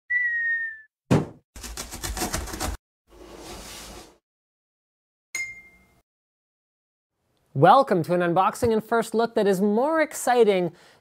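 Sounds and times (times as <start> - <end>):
loud cartoon thud: 1.1 - 1.4.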